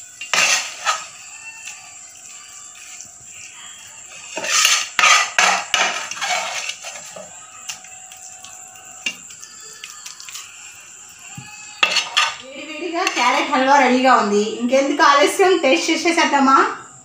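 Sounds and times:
metal spoon scraping a pan: 0:00.0 - 0:03.5, 0:04.1 - 0:07.8, 0:11.8 - 0:13.9.

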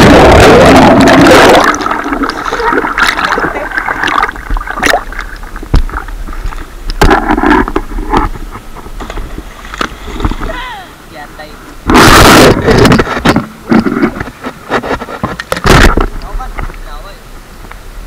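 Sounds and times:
loud splash into water: 0:00.0 - 0:05.2.

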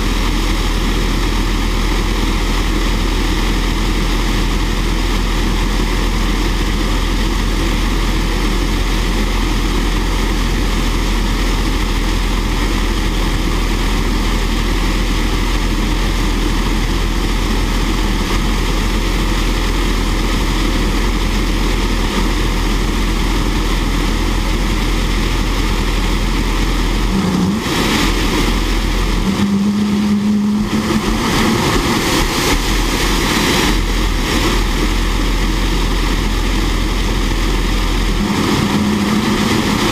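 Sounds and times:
jet engine running: 0:00.0 - 0:39.9
short low hum: 0:00.0 - 0:39.9.

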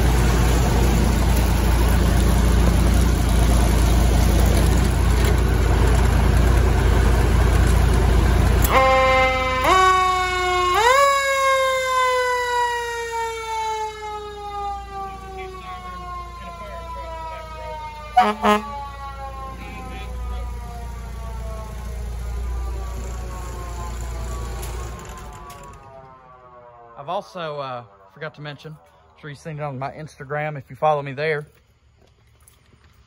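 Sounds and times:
fire engine rumbling: 0:00.0 - 0:33.0
mechanical siren wailing: 0:08.0 - 0:29.7.

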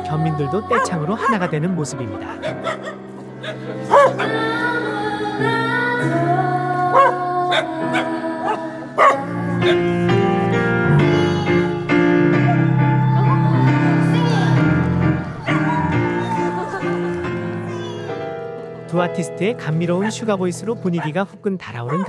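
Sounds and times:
person singing: 0:00.0 - 0:02.6, 0:03.5 - 0:18.0
keyboard playing: 0:00.0 - 0:21.2
dog howling: 0:00.7 - 0:01.5, 0:02.3 - 0:04.6, 0:06.9 - 0:09.8, 0:12.4 - 0:14.0, 0:15.4 - 0:17.1.

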